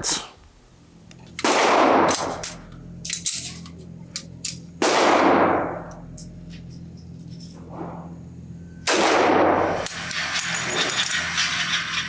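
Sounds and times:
pistol shots reverberating indoors: 1.4s - 2.5s, 4.8s - 5.9s, 8.8s - 10.4s.

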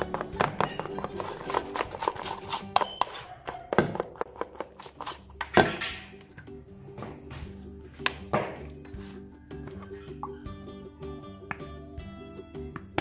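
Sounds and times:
plastic spoon stirring slime: 0.0s - 5.6s
background music: 0.0s - 13.0s.

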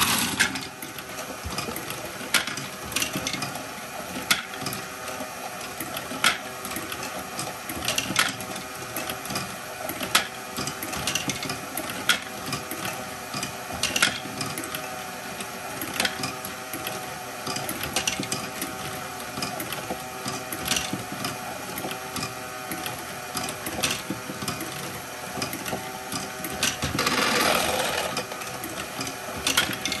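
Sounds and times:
plastic balls rattling: 0.0s - 0.6s, 26.9s - 28.3s
plastic gears whirring: 0.0s - 1.1s, 26.5s - 30.0s.

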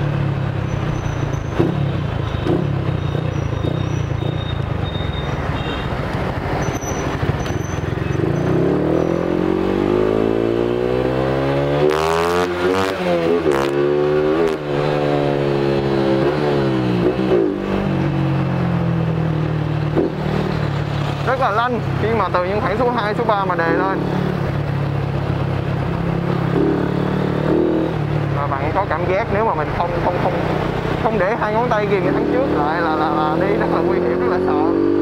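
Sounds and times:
motorcycle engine revving: 0.0s - 35.0s.

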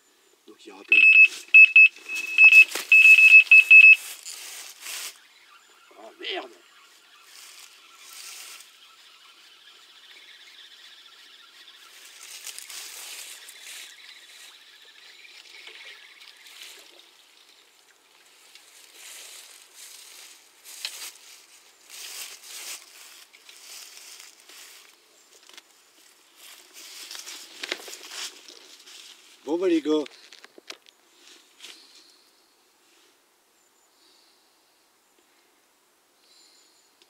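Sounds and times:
fishing tackle rustling and scraping: 1.2s - 5.2s, 15.3s - 29.4s.

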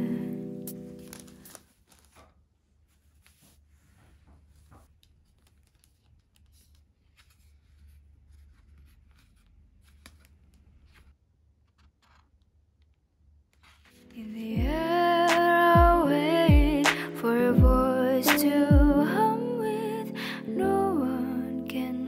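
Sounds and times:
tissue paper rustling: 0.5s - 10.1s.

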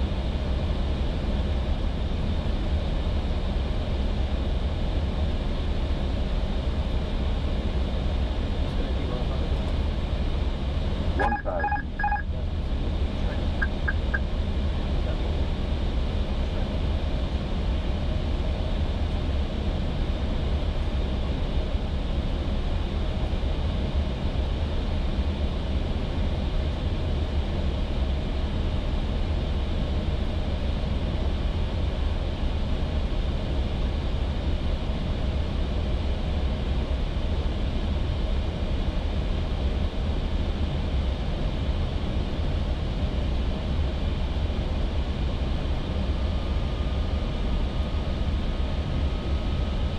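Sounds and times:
faint steady tones: 11.2s - 12.4s, 13.3s - 14.2s.

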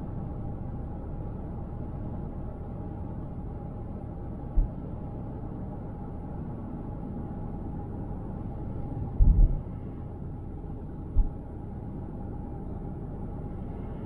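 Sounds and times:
car rumble at highway speed: 0.0s - 14.0s.

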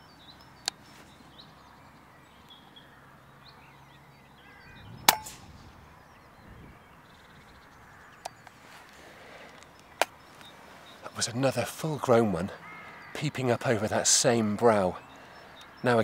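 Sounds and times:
air rifle shot crack: 5.0s - 5.8s.

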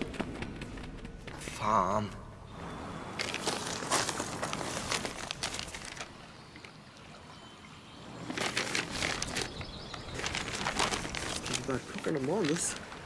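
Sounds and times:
paper sheets rustling: 3.2s - 6.1s, 8.3s - 13.0s.

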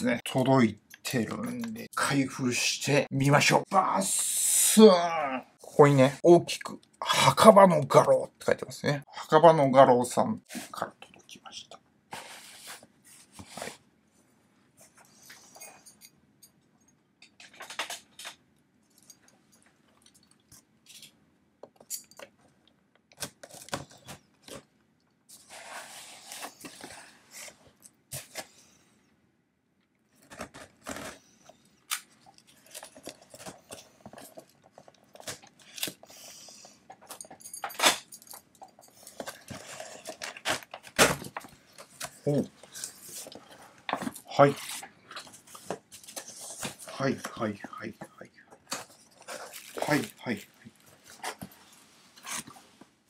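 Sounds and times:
tape tearing: 30.2s - 31.2s, 39.5s - 42.1s.

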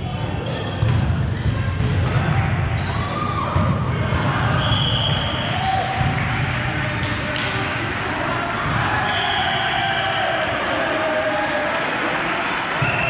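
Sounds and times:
volleyball hit and bouncing: 0.8s - 7.6s.

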